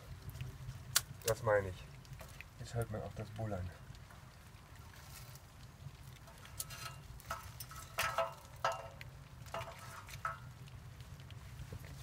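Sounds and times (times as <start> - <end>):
stove fire rumbling: 0.0 - 12.0
wood sticks clicking and knocking: 6.1 - 10.8.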